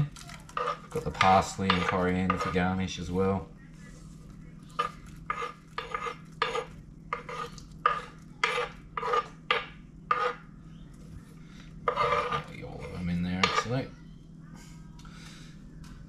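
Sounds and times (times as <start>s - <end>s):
utensil scraping metal pot: 0.5s - 2.6s, 4.8s - 10.4s, 11.9s - 13.8s.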